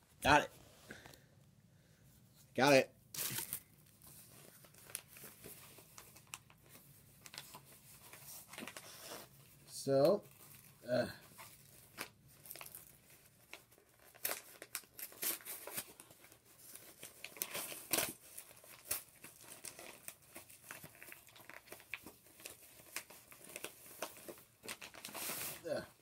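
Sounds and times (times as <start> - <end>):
packaging crinkling and tearing: 3.1 - 9.3, 11.4 - 25.8.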